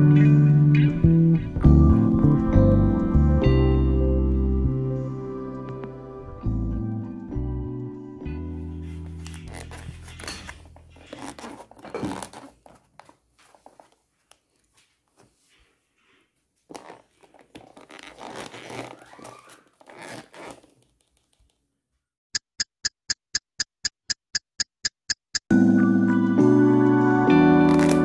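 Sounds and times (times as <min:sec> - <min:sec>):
plastic tub rustling and scraping: 0:09.1 - 0:14.0.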